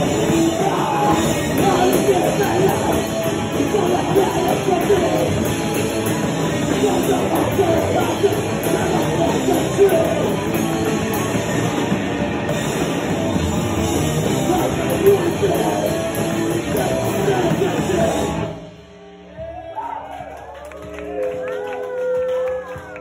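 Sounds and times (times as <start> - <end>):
electric guitar: 0.0 - 19.2
drum kit: 0.0 - 20.0.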